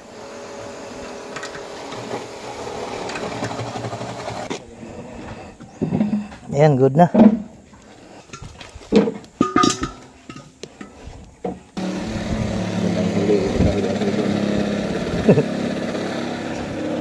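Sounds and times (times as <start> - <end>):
air compressor running: 0.0 - 6.3, 11.7 - 17.0
air fittings clinking: 7.3 - 11.6.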